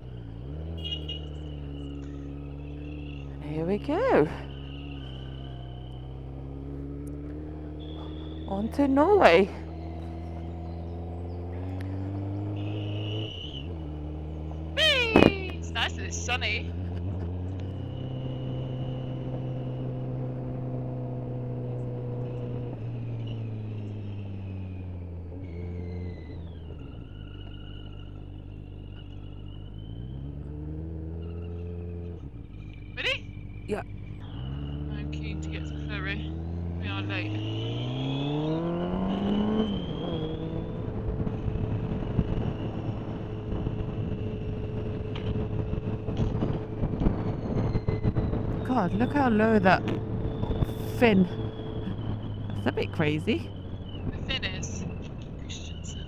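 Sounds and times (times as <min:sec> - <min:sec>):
motorcycle engine running: 0:00.0 - 0:56.0
thin high whistle: 0:12.6 - 0:13.7
wind rumble on microphone: 0:39.1 - 0:56.0.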